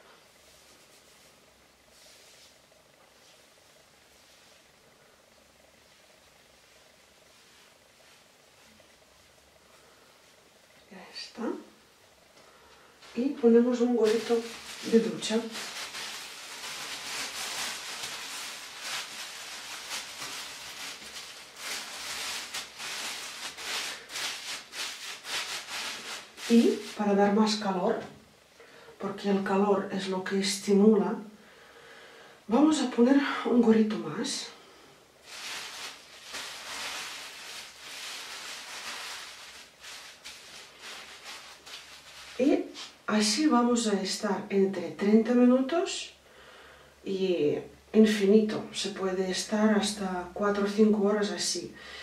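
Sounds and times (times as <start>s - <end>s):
plastic shower cap crinkling: 14.0s - 27.2s, 35.2s - 43.0s.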